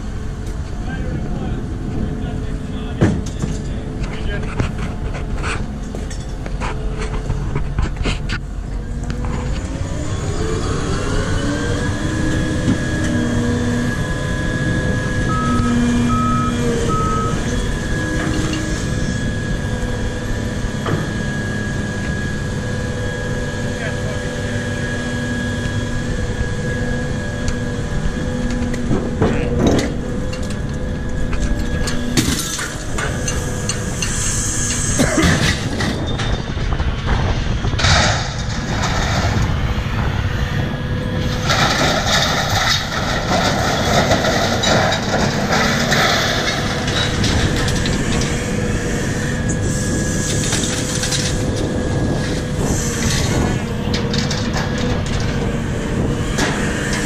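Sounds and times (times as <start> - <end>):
crane machinery running: 0.0 - 57.0
scrap metal crashing and scraping: 31.5 - 39.7, 41.2 - 48.6.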